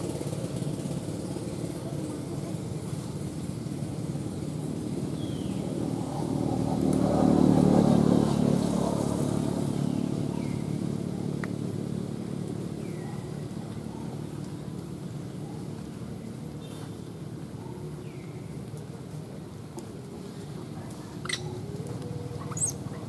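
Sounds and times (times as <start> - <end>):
vehicle engine passing by: 0.0 - 14.4.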